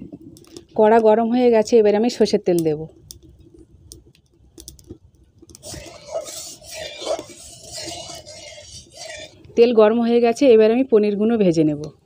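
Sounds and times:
oil hissing and crackling in pan: 0.0s - 9.5s.

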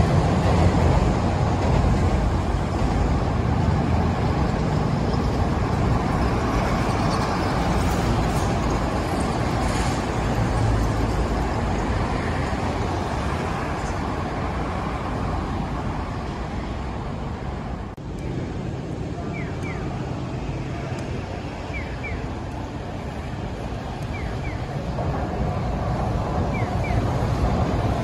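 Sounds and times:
city street traffic: 0.0s - 28.0s
train on viaduct: 0.0s - 28.0s
pedestrian crossing signal chirps: 19.2s - 20.0s, 21.6s - 22.4s, 24.0s - 24.9s, 26.4s - 27.3s.

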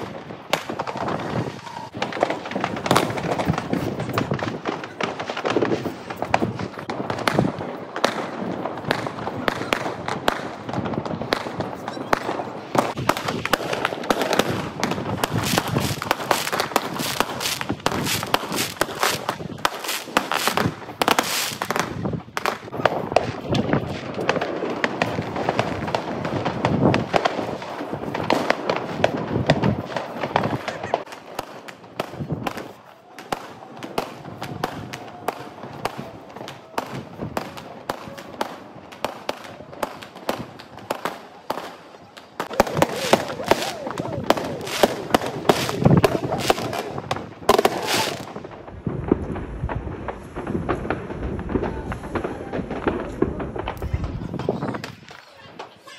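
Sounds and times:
fireworks bangs and crackles: 0.0s - 55.9s.

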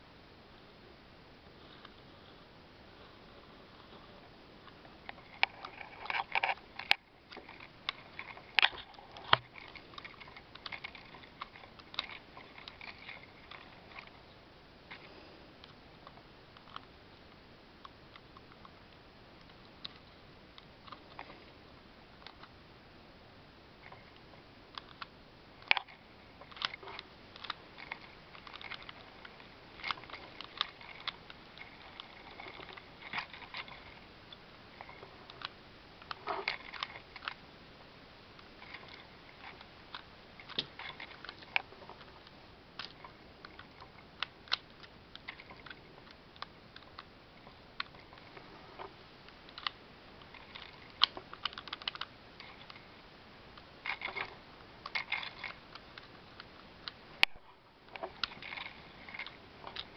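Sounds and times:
plastic bricks clicking: 38.4s - 47.1s, 47.8s - 52.8s.

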